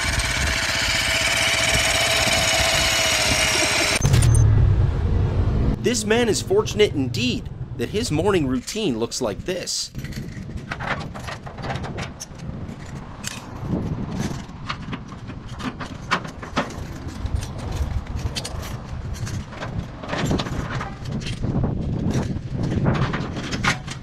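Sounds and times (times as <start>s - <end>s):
low steady rumble: 1.2s - 10.7s.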